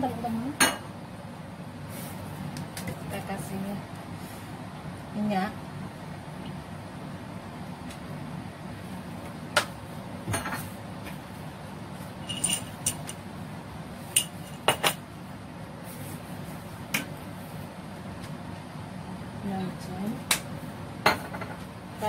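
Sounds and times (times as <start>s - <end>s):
steady low hum: 0.0s - 22.0s
kitchen utensils clinking: 12.2s - 13.2s.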